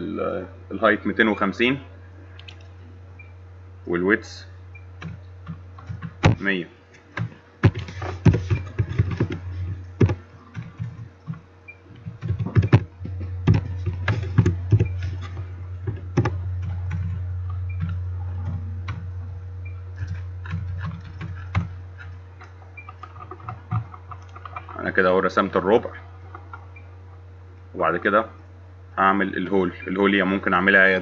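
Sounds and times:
low hum: 0.0 - 31.0
keyboard typing: 5.0 - 6.4, 7.1 - 19.1, 20.0 - 24.9.

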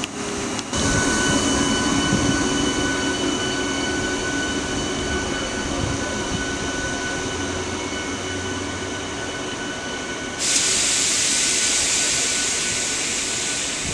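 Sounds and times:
electric train whine: 0.0 - 13.9
loud steady hiss: 10.4 - 13.9.

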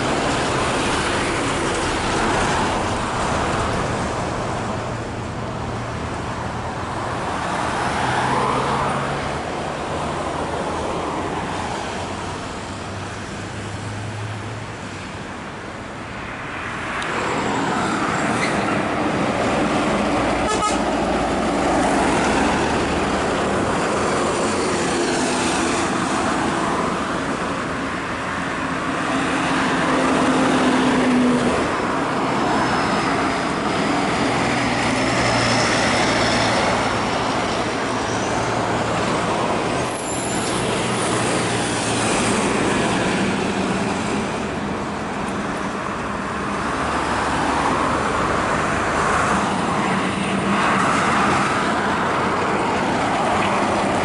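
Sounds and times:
diesel trucks passing: 0.0 - 54.0.

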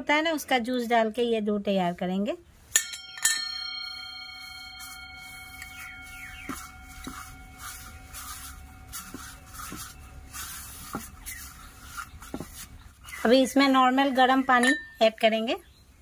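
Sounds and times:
faint metallic ringing: 2.7 - 11.3, 14.2 - 15.4
fingers rubbing flour on plate: 4.2 - 14.4.

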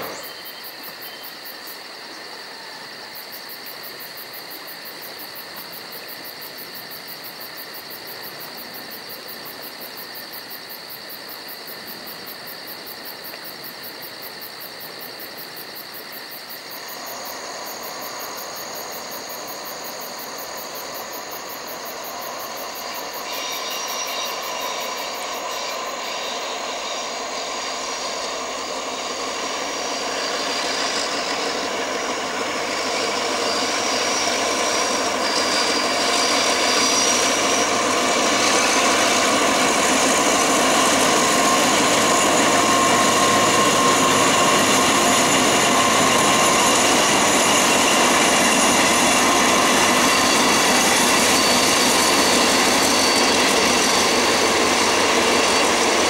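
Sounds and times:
diesel locomotive engines running: 0.0 - 56.0.

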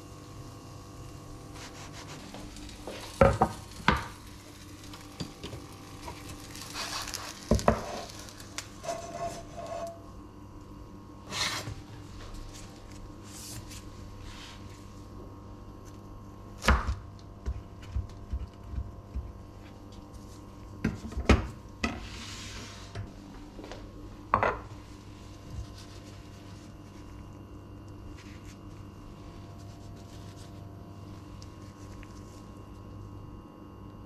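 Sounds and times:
low steady hum: 0.0 - 34.0
knife scraping: 8.8 - 10.1
plate set down on counter: 24.3 - 24.7.

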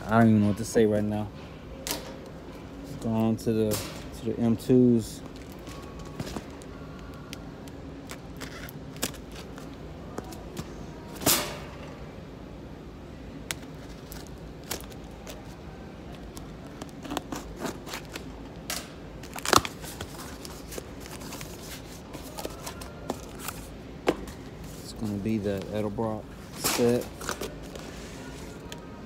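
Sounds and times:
packing tape ripping: 8.0 - 9.6, 16.2 - 23.6.

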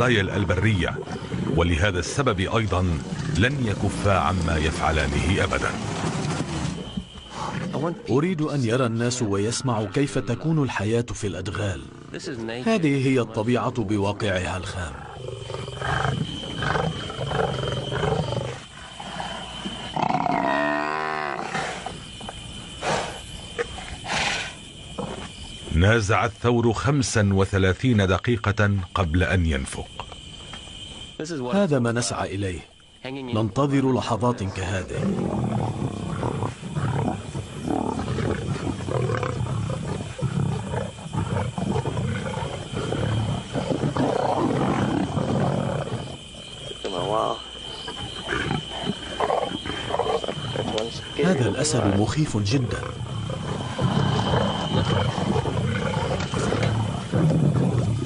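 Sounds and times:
lions growling and snarling: 0.0 - 8.1, 14.3 - 22.0, 34.5 - 58.0
buffalo bellowing: 35.1 - 58.0.

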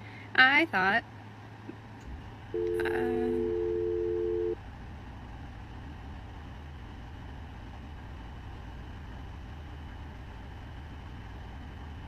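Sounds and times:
low background hum: 0.0 - 12.0
two-note electronic tone: 2.6 - 4.6.

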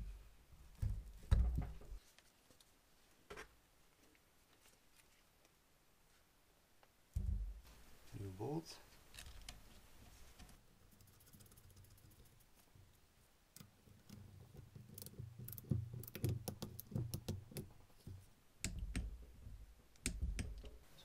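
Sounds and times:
faint handling noise: 1.5 - 7.0.

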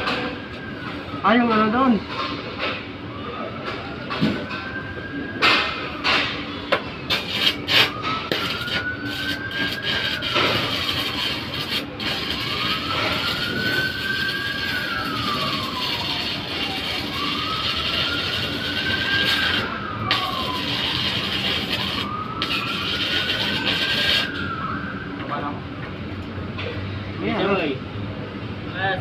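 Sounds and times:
siren wailing: 0.0 - 25.8
welding arc crackling and hissing: 7.1 - 24.4.

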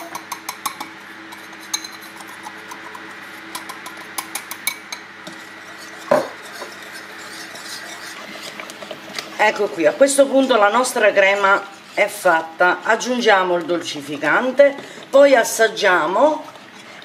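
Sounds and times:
whisk clinking against glass bowl: 0.0 - 8.5.

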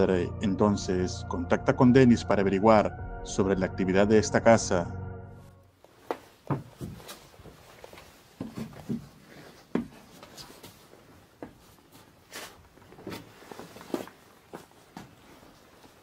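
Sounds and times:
footsteps: 5.8 - 16.0
light knocks and scuffs: 5.9 - 15.5.

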